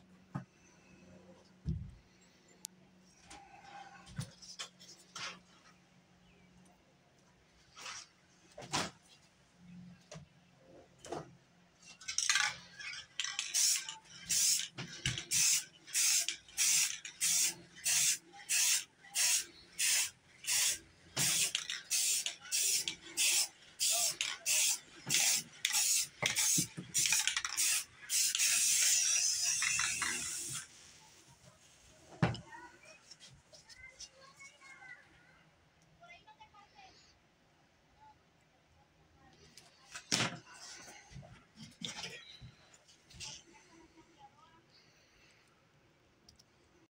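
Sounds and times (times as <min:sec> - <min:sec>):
spray paint can hissing: 0:13.3 - 0:30.7.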